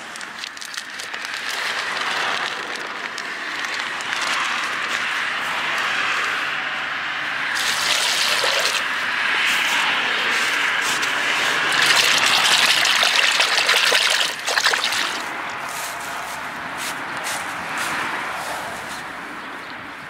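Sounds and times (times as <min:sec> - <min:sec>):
water pouring and splashing: 0:00.4 - 0:02.9, 0:07.5 - 0:09.0, 0:11.6 - 0:15.5
water sloshing: 0:07.6 - 0:09.0, 0:11.6 - 0:15.6.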